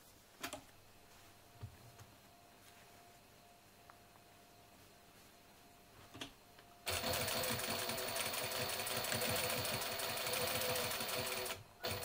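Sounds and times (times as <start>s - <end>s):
sewing machine stitching: 6.9s - 12.0s.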